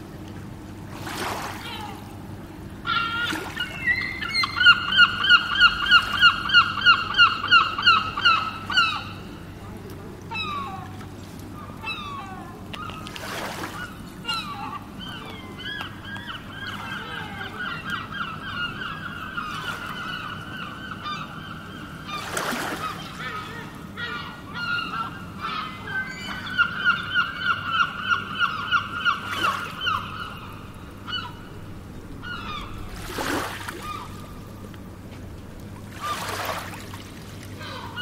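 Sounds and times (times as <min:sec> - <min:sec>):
bird calling repeated notes: 0:02.8 - 0:09.4, 0:11.6 - 0:34.6.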